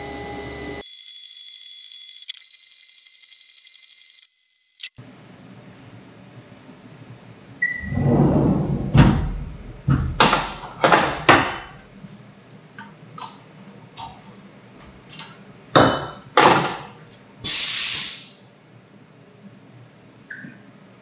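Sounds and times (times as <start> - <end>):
machine low rumble: 7.7 - 12.1
metallic knocks and clicks: 8.6 - 11.9
loud hiss: 17.4 - 18.4.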